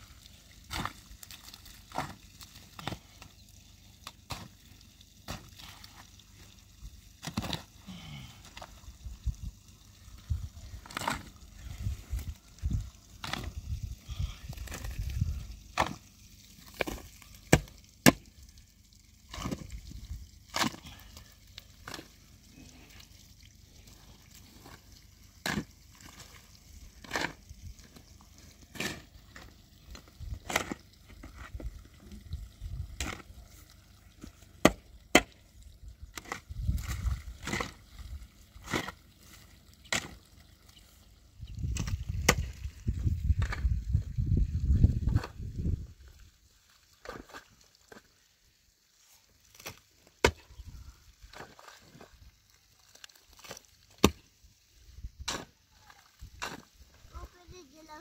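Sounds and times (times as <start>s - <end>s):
wood being chopped: 16.8s - 18.2s, 34.6s - 35.3s, 49.6s - 50.5s, 54.0s - 54.2s.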